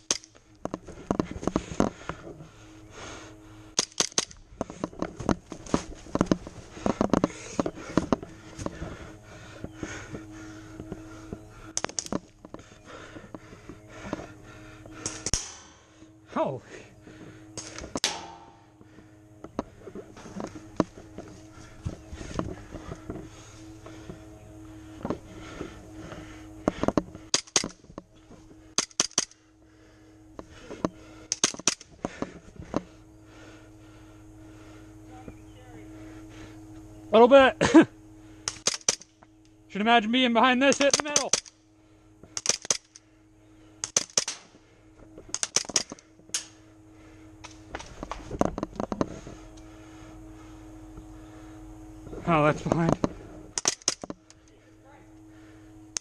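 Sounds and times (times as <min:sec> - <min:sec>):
sharp clicks and cracks: 0:00.0 - 0:01.9, 0:03.8 - 0:08.7, 0:11.8 - 0:12.6, 0:14.9 - 0:15.7, 0:26.7 - 0:28.1, 0:28.7 - 0:29.4, 0:30.4 - 0:32.8, 0:38.4 - 0:39.6, 0:40.6 - 0:41.6, 0:42.3 - 0:43.0, 0:43.8 - 0:44.6, 0:45.2 - 0:46.6, 0:47.4 - 0:49.1, 0:52.6 - 0:54.6
faint steady hum: 0:00.0 - 0:56.0.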